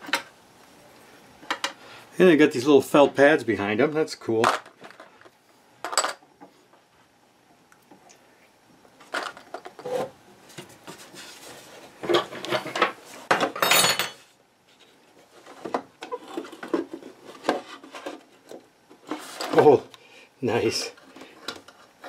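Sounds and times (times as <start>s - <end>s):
radio being handled and taken apart: 4.4s - 5.3s, 9.0s - 10.0s.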